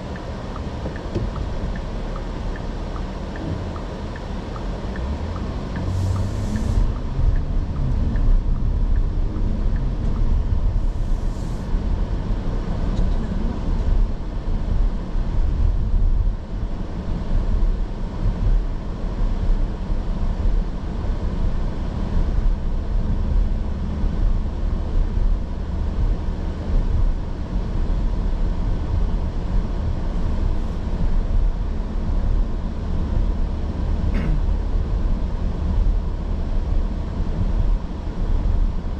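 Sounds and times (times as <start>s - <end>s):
car engine and road noise: 0.0s - 38.9s.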